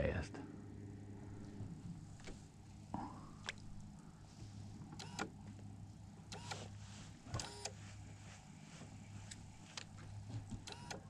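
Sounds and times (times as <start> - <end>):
short clicks: 5.0 - 5.3.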